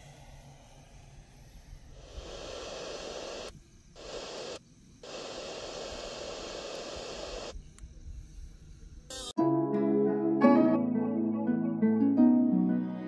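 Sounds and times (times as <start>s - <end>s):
steady hissing: 0.0s - 9.4s.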